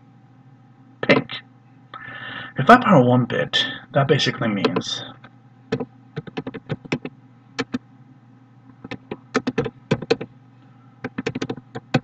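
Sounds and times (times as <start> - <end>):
faint steady hum: 0.0 - 12.0
typing on computer keyboard: 5.7 - 7.8, 8.8 - 10.3, 11.0 - 12.0.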